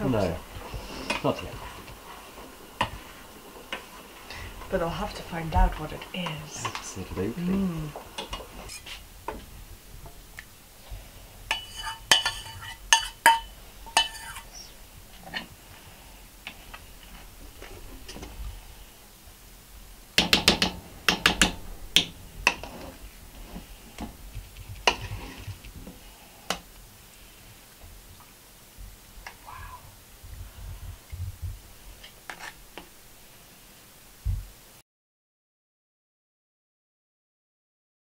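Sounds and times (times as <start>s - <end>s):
metal spoon scraping saucepan: 11.5s - 15.5s.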